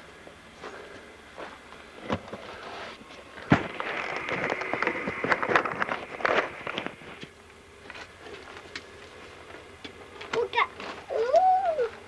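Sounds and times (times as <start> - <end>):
crackling and scraping: 1.5 - 11.1
microphone handling noise: 3.4 - 7.2.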